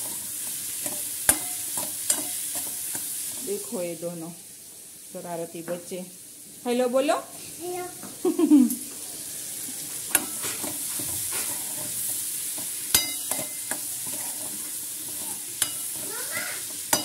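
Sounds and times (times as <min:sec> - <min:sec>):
spoon stirring and scraping pan: 0:00.0 - 0:03.8, 0:08.9 - 0:17.0
vegetables sizzling in a pan: 0:00.0 - 0:17.0
spoon clicking against pan: 0:15.6 - 0:16.0.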